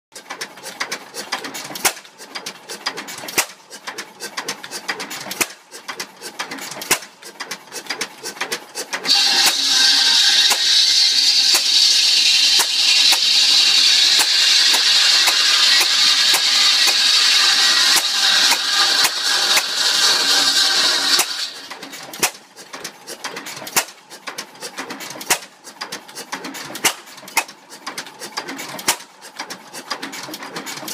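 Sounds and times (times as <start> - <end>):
engine firing knocks and clatter: 0.2 - 9.7, 14.1 - 30.9
buzz saw cutting wood: 2.7 - 23.9.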